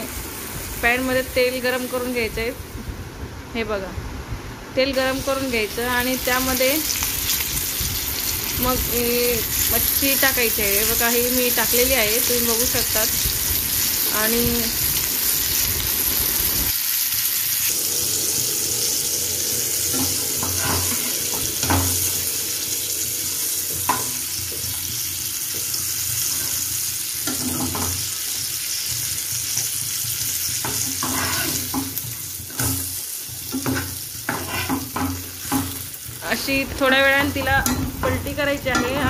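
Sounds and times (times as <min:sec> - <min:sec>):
fish sizzling in oil: 0:05.1 - 0:39.0
steel spatula scraping a pan: 0:19.9 - 0:22.1, 0:30.1 - 0:31.8, 0:33.7 - 0:35.6.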